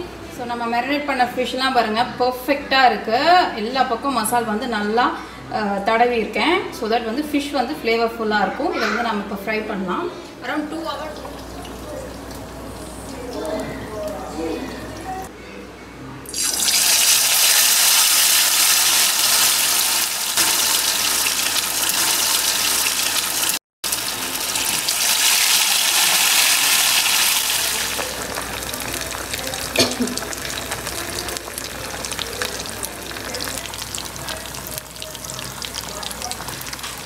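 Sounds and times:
fish frying in hot oil: 0:16.4 - 0:37.0
oil crackles: 0:16.4 - 0:37.0.

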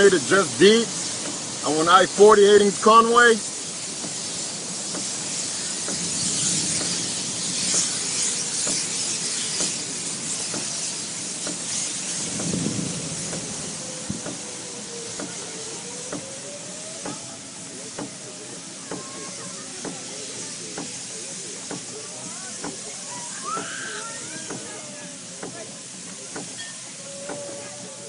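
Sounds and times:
storm wind and rain: 0:00.0 - 0:20.6
small ticks and knocks: 0:05.8 - 0:06.1.

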